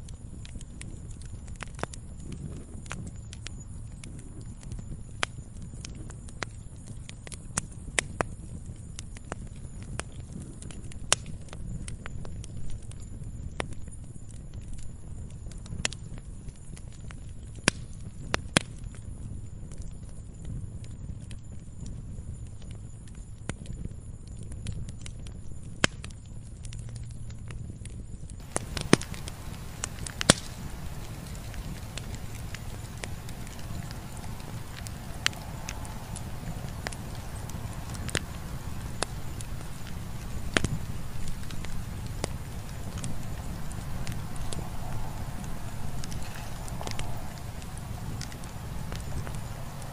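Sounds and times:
campfire crackling and popping: 0:00.0 - 0:49.9
rumble of fire flames: 0:00.0 - 0:49.9
low steady rumble: 0:28.4 - 0:49.9.

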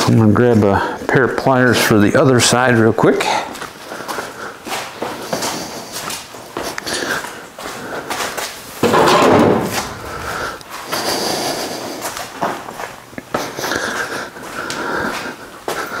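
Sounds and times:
footsteps: 0:07.6 - 0:10.8
scattered knocks: 0:08.8 - 0:10.1
loud clatter: 0:08.8 - 0:10.4
tool handling noise: 0:08.8 - 0:10.6.

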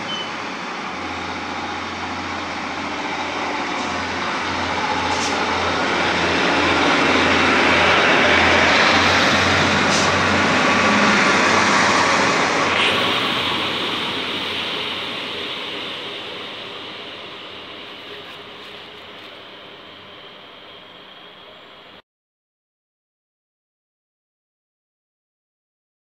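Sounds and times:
diesel train passing: 0:00.0 - 0:22.0.

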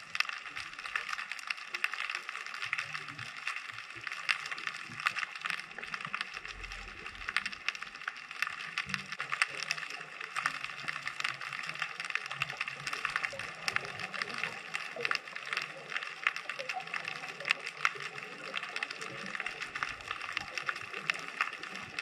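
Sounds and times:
underwater crackling clicks and pops: 0:00.0 - 0:22.0.

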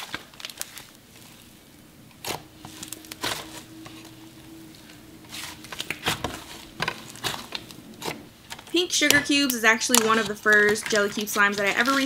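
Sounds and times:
slime crackling and tearing: 0:00.0 - 0:01.4.

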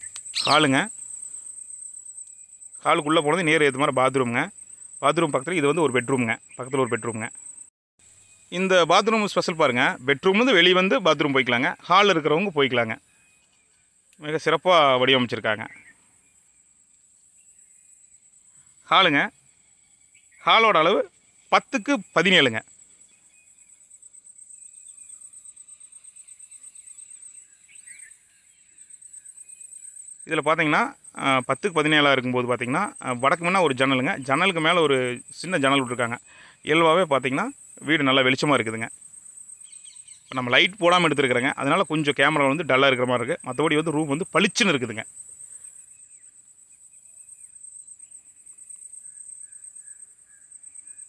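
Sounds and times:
short bird chirps: 0:00.0 - 0:01.5
faint chirps: 0:00.0 - 0:51.0
insects trilling: 0:00.0 - 0:51.0.

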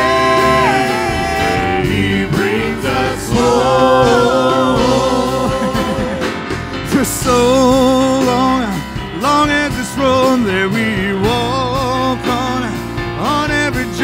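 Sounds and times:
worship band and singers: 0:00.0 - 0:14.0.

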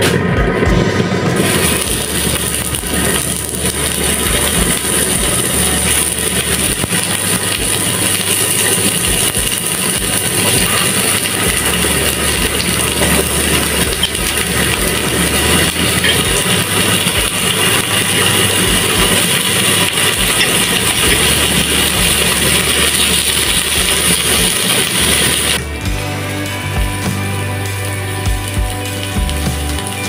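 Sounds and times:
chicken wings sizzling in oil: 0:01.4 - 0:30.0.

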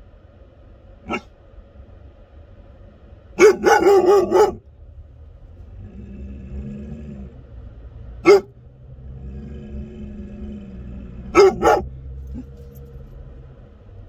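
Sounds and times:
car road rumble: 0:00.0 - 0:14.0
dog barking: 0:01.0 - 0:01.3, 0:03.4 - 0:04.6, 0:08.2 - 0:08.6, 0:11.3 - 0:12.6.

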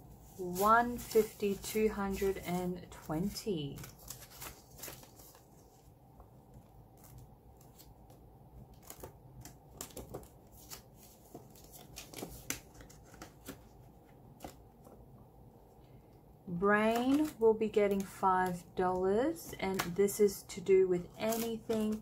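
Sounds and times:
banknotes rustling and crinkling: 0:00.0 - 0:05.9, 0:06.5 - 0:15.0, 0:16.9 - 0:18.6, 0:21.0 - 0:22.0.

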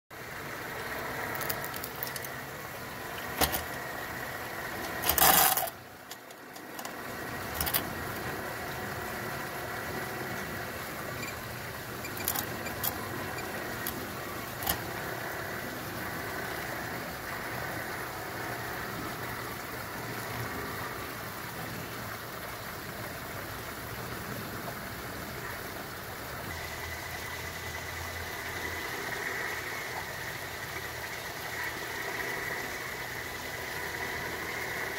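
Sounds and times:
toy truck motor humming: 0:00.3 - 0:21.0, 0:26.4 - 0:34.9
sharp clicks and knocks: 0:01.3 - 0:02.4, 0:03.1 - 0:03.8, 0:04.8 - 0:08.3, 0:12.0 - 0:14.9.

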